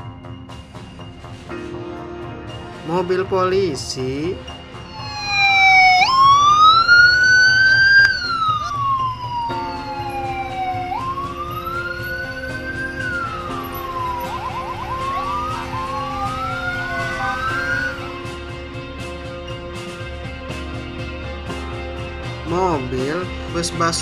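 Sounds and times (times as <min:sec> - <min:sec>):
police siren wailing: 0:04.8 - 0:18.5.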